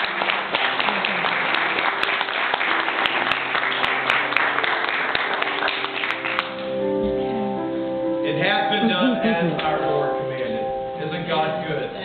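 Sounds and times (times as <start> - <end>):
congregation applauding: 0.0 - 6.9
faint music: 0.0 - 12.0.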